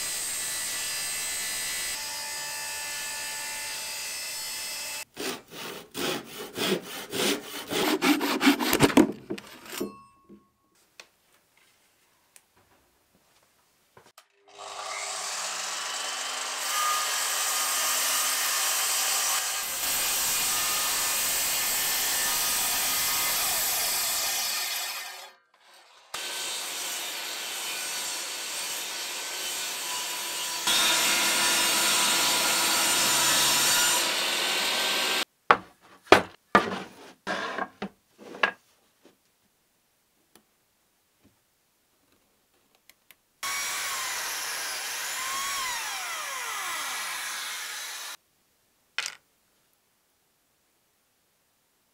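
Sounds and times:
mitre saw cutting board: 0:00.0 - 0:09.8, 0:14.6 - 0:38.6, 0:43.4 - 0:48.2
table saw ripping plank: 0:00.1 - 0:09.8, 0:14.6 - 0:38.4, 0:43.4 - 0:48.2.

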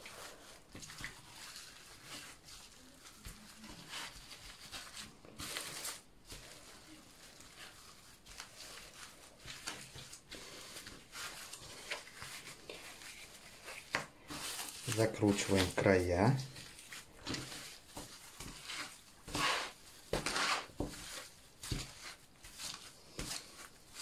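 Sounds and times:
cling film crinkling: 0:00.0 - 0:24.0.

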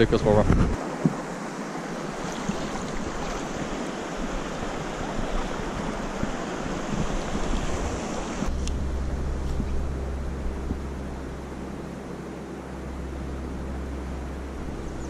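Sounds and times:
river current rushing and lapping: 0:00.0 - 0:15.0
low steady rumble: 0:08.4 - 0:15.0.

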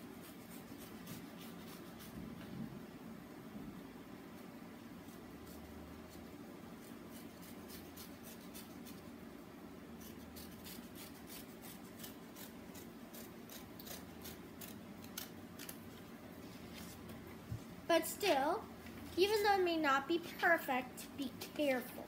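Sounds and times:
scissors snipping paper: 0:10.0 - 0:15.9.

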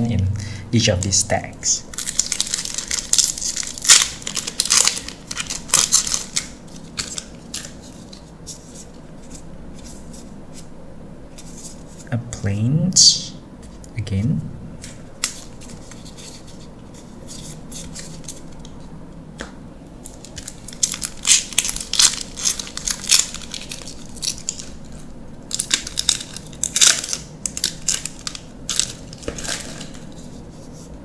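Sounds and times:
wrapper crinkling and tearing: 0:01.9 - 0:08.3, 0:20.0 - 0:30.3.

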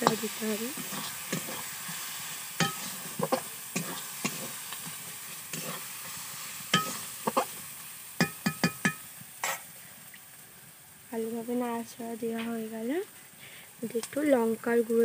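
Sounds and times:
metal spatula scraping pan: 0:00.0 - 0:07.6
food sizzling: 0:00.0 - 0:15.0.

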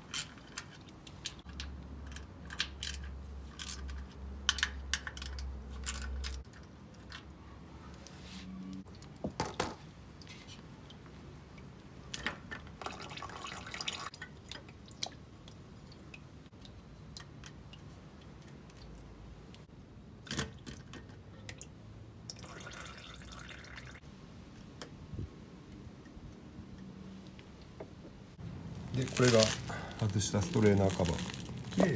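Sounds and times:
engine oil dripping: 0:10.1 - 0:19.6, 0:21.3 - 0:24.0.

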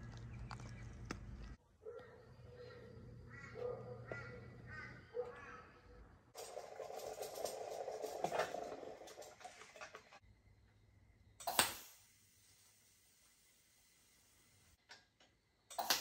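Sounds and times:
welding arc striking crack: 0:11.4 - 0:12.2.

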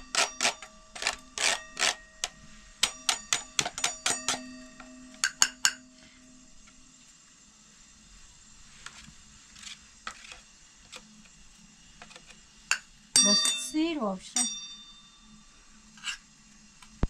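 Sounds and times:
dishes clinking: 0:02.9 - 0:06.0, 0:12.7 - 0:13.8, 0:14.4 - 0:14.8.

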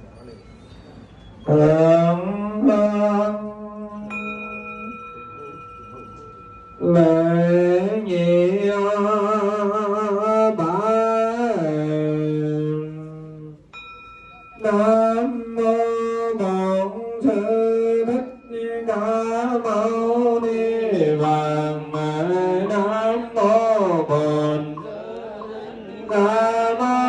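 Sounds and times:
slow wavering funeral melody: 0:01.4 - 0:27.0
small bell ringing: 0:04.0 - 0:08.4, 0:13.7 - 0:27.0.

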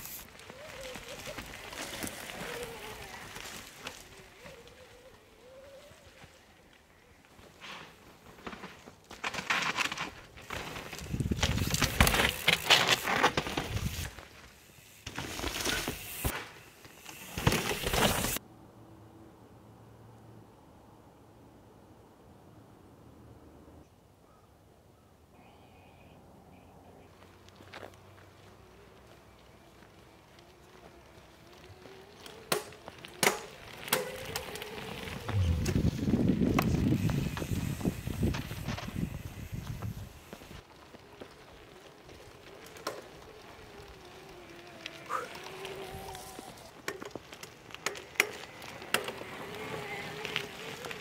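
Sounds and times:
bike tyres crunching over rocks: 0:00.0 - 0:18.4, 0:27.1 - 0:51.0
bike rattling clicks: 0:32.1 - 0:39.5, 0:46.8 - 0:49.3.

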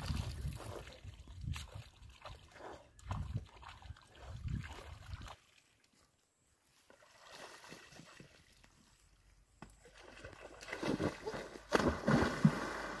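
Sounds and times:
water splashing from a bucket: 0:09.8 - 0:13.0.

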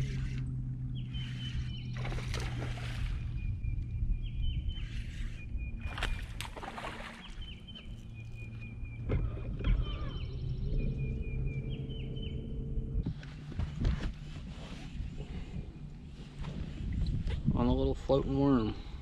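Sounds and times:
steady low hum: 0:00.0 - 0:19.0
water splashes: 0:02.0 - 0:03.4, 0:05.8 - 0:07.6.

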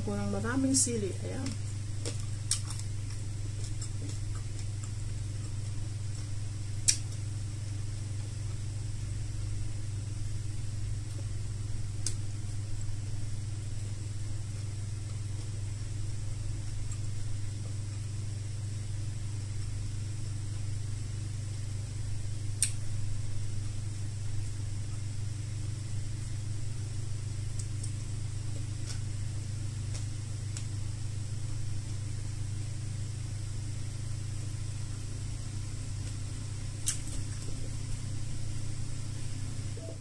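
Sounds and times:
low room hum: 0:00.0 - 0:40.0
faint sharp eating clicks: 0:01.4 - 0:08.8, 0:11.0 - 0:13.0, 0:16.6 - 0:18.1, 0:22.5 - 0:22.8, 0:27.4 - 0:30.8, 0:36.8 - 0:37.9.

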